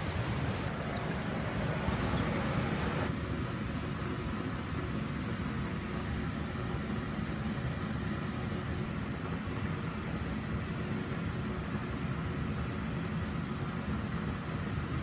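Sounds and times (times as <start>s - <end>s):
low rumbling background noise: 0.0s - 15.0s
faint high chirp: 1.8s - 2.4s.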